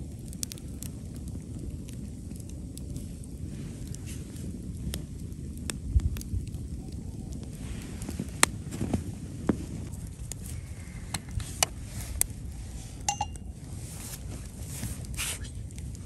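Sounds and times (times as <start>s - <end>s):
wood fire crackling and popping: 0.0s - 16.0s
spoon clinking on metal mug: 13.1s - 13.4s.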